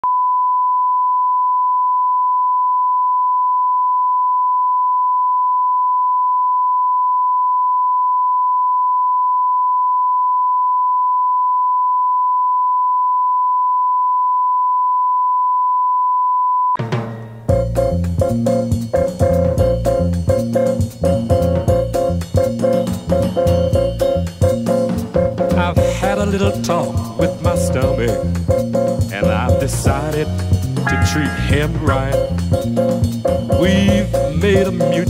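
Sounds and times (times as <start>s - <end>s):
music with drums and bass: 16.8s - 35.0s.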